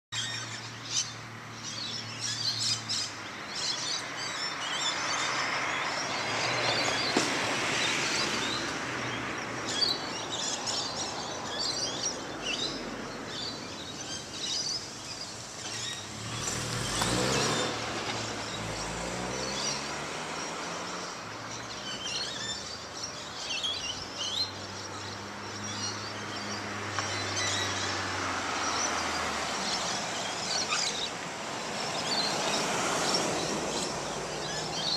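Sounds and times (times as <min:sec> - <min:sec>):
birds chirping: 0:00.1 - 0:34.9
road traffic hiss: 0:00.2 - 0:34.9
car driving past: 0:15.7 - 0:22.6.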